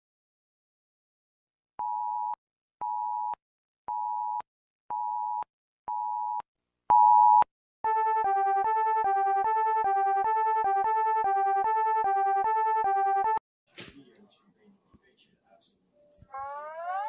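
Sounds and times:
fast synthesized alarm melody: 7.9 - 13.4.

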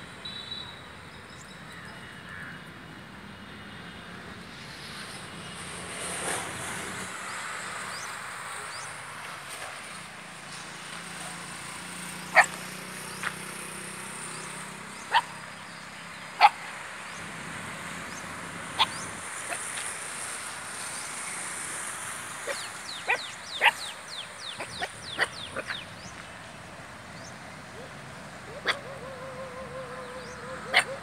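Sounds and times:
dog barking: 12.3 - 12.6, 15.1 - 15.3, 16.4 - 16.6, 30.5 - 31.0.

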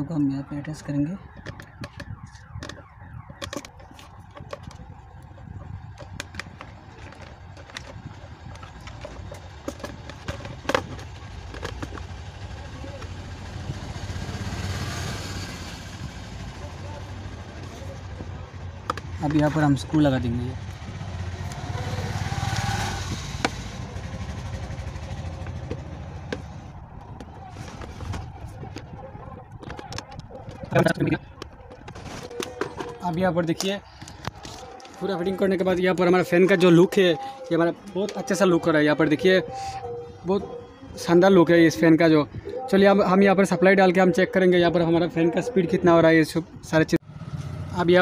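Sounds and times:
plastic parts clicking and knocking: 0.7 - 12.4, 18.1 - 20.1, 25.2 - 36.6
engine running with low pulse: 20.5 - 30.6.

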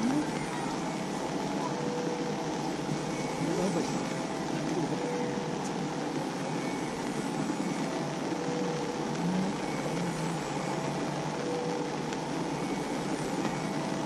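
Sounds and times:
faint indistinct voices: 0.0 - 8.4
outdoor background noise: 0.0 - 14.0.

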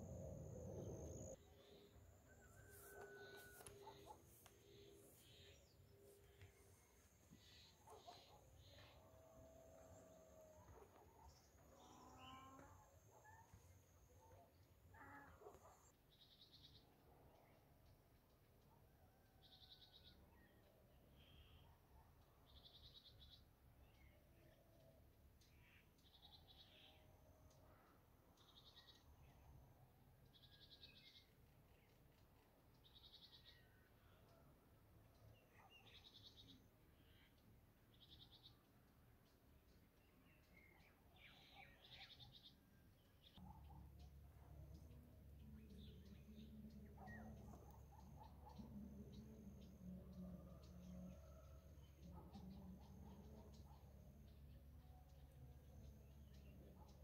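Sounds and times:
faint chirps: 0.0 - 16.8.

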